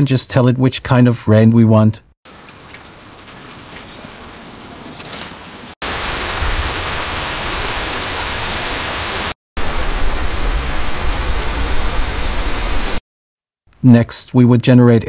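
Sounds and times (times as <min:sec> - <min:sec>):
heavy rain with deep rumble: 0:02.3 - 0:13.0
steady rain: 0:02.3 - 0:13.0.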